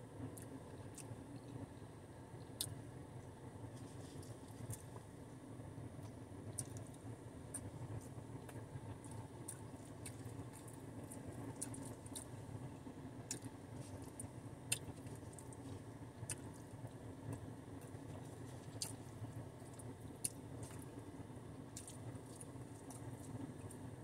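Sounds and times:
faint low hum: 0.0 - 24.0
person chewing food: 6.0 - 12.4, 13.2 - 21.0, 21.7 - 23.9.

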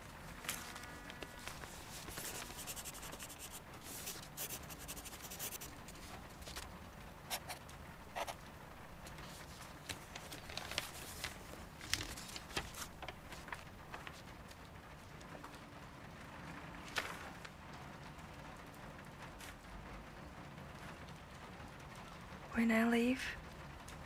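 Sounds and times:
paper rustling and crinkling: 0.0 - 7.6, 9.0 - 14.6, 16.8 - 17.5
sharp paper crackles: 0.0 - 7.6, 9.0 - 14.6.

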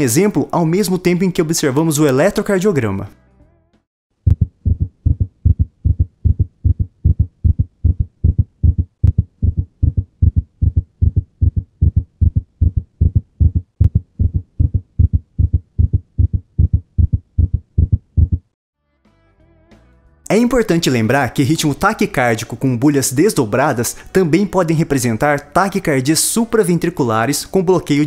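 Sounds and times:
fast heartbeat thuds: 4.2 - 18.6.

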